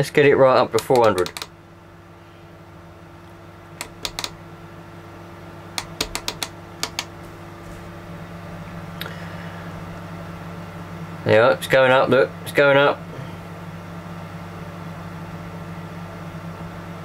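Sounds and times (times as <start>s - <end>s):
steady low hum: 0.0s - 17.0s
push-button clicks: 0.8s - 1.5s, 3.8s - 4.4s, 5.8s - 7.1s.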